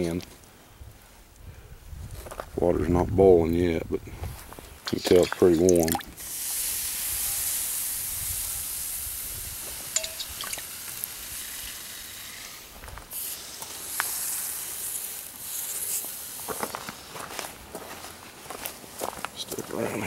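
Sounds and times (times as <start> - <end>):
faint fire crackles: 0.0 - 5.5, 6.2 - 20.0
fire hissing and sizzling in stove: 6.2 - 17.8.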